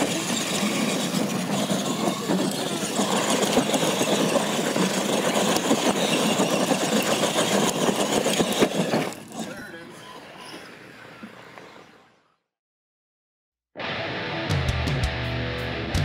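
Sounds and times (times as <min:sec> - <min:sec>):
tyres scrabbling over dirt: 0:00.0 - 0:09.8
rc trucks motors and gears: 0:00.0 - 0:12.2.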